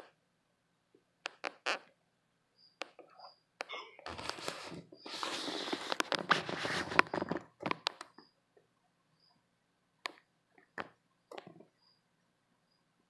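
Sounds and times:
faint cricket chirping: 0.7 - 13.0
sharp clicks and taps: 1.2 - 1.8, 2.8 - 3.8, 7.2 - 8.2.

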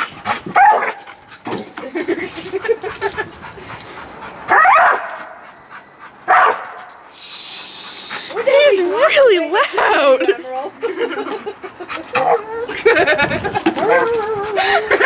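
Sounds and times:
dog yelping: 0.6 - 1.7, 2.5 - 7.0, 12.0 - 15.0
dog whining: 12.0 - 15.0.

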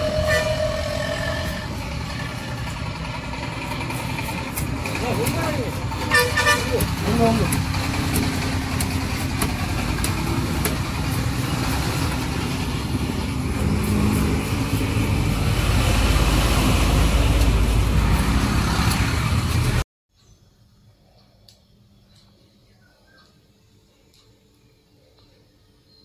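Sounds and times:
road traffic noise: 0.0 - 19.8
vehicle engine rumbling: 0.0 - 19.8.

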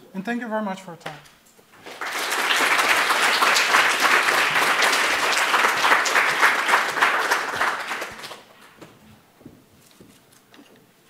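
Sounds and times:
audience applauding: 1.8 - 8.6.

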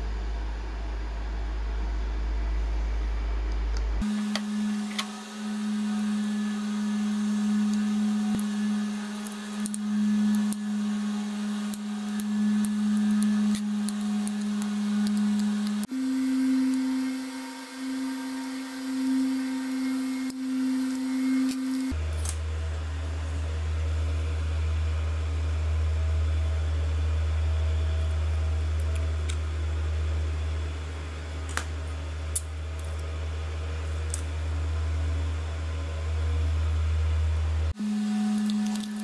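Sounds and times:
steady pitched hum: 0.0 - 39.0.

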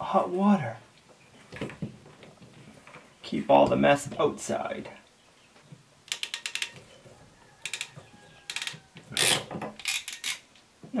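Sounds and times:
ratcheting crimp tool clicking: 7.6 - 7.9, 8.5 - 10.4.

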